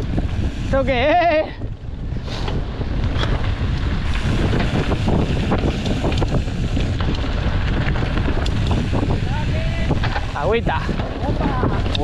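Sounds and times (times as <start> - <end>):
mountain bike rattling: 0.0 - 12.0
wind buffeting microphone: 0.0 - 12.0
wheels knocking on stones: 2.5 - 12.0.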